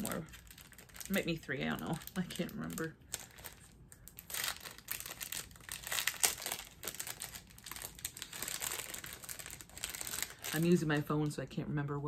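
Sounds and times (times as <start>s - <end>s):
packaging crinkling: 0.0s - 11.0s.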